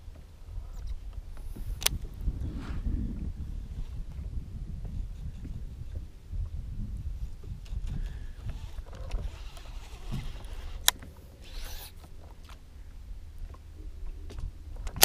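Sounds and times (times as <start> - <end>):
wind rumbling on microphone: 0.0 - 15.0
sharp click: 1.8 - 2.0.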